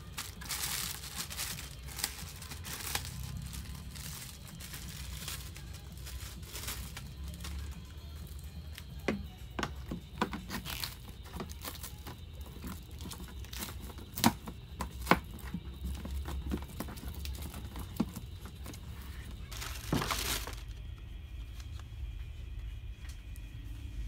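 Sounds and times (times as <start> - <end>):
plastic film crinkling: 0.0 - 21.8.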